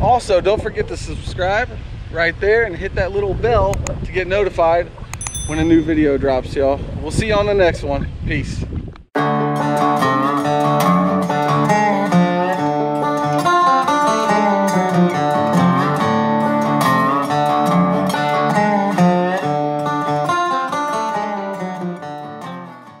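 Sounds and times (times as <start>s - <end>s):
guitar-led instrumental music: 9.2s - 23.0s.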